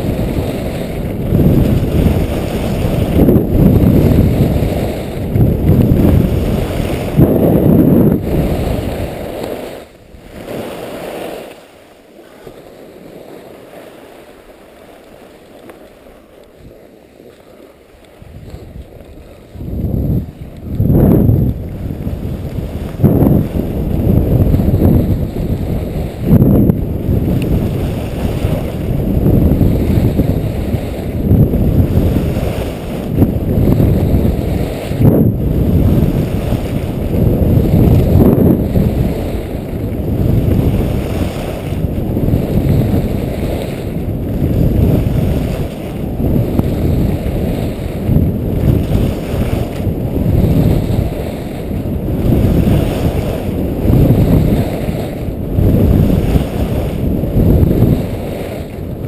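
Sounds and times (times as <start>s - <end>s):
wind buffeting microphone: 0.0s - 11.6s, 15.0s - 59.0s
skis scraping on hard snow: 0.0s - 59.0s.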